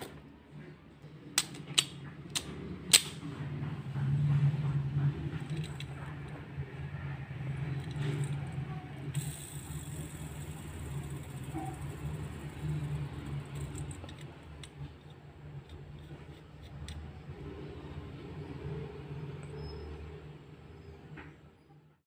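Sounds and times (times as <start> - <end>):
steady low hum: 0.0 - 21.0
spinning top clicking in fingers: 7.6 - 17.3.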